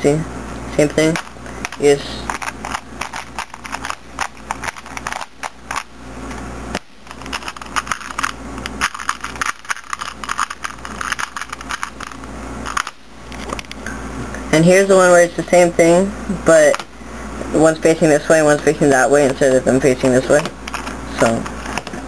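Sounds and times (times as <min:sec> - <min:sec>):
puzzle cube clicking turns: 0:01.1 - 0:05.9, 0:07.1 - 0:13.5.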